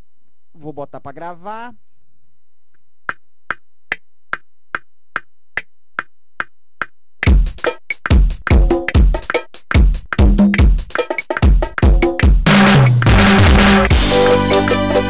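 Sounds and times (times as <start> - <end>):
drum kit rhythm: 7.2 - 15.0
heavy bass drum: 7.2 - 15.0.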